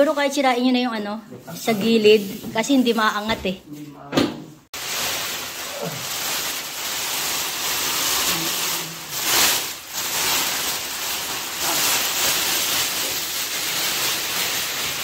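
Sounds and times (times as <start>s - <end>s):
plastic sheeting crinkling: 4.7s - 15.0s.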